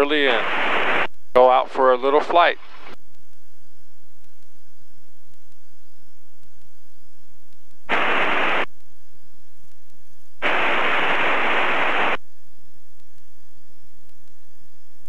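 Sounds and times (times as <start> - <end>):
radio static hiss bursts: 0.0 - 3.4, 4.1 - 12.2.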